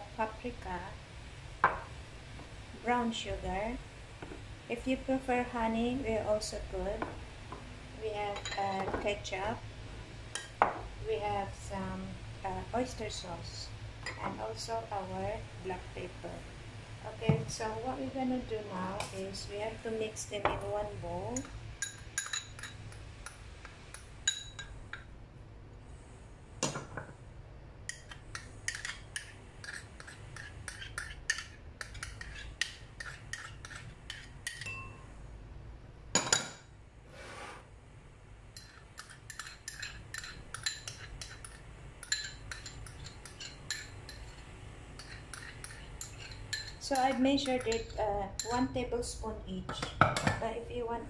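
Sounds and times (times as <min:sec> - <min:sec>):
metal spoon clinking ceramic bowls: 0:21.4 - 0:22.9, 0:33.0 - 0:35.0, 0:38.6 - 0:44.4, 0:45.0 - 0:48.6.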